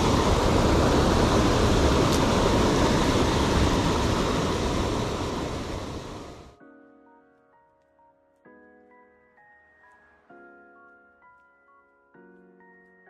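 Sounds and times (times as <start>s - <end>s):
river water rushing: 0.0s - 6.5s.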